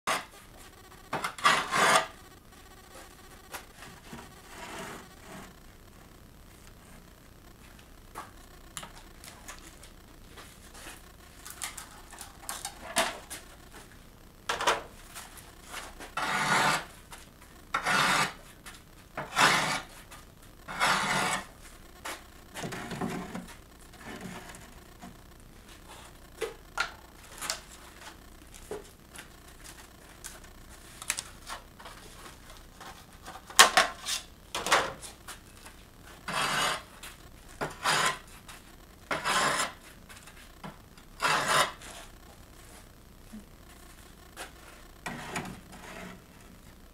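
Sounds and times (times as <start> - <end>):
tiles scraping against molds: 1.1 - 2.2, 15.6 - 17.0, 17.7 - 18.5, 19.2 - 20.0, 20.7 - 21.5, 36.2 - 38.4, 39.1 - 40.4, 41.2 - 42.0.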